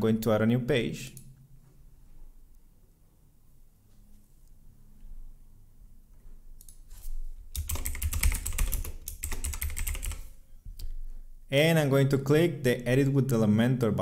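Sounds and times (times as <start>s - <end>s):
typing on computer keyboard: 7.5s - 10.4s.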